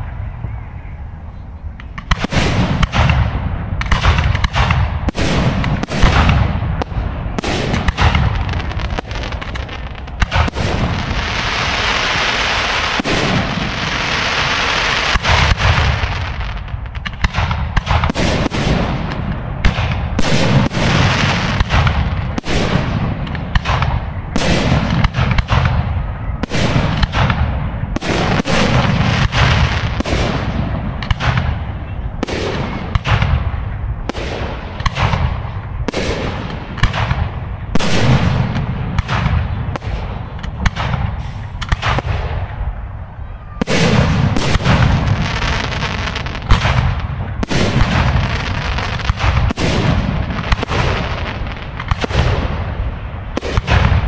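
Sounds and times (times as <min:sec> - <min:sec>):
firework shells bursting: 0:03.8 - 0:23.9
firework hiss: 0:07.4 - 0:17.2, 0:41.0 - 0:42.0.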